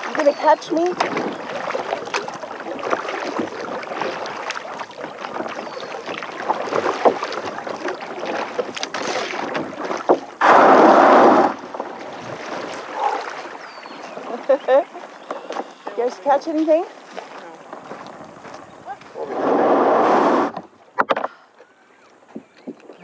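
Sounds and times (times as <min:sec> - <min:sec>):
knocks and taps on hull: 0:00.0 - 0:10.3, 0:15.0 - 0:15.9
water splashing around kayak hull: 0:00.0 - 0:23.0
hull scraping on gravel: 0:16.4 - 0:20.6.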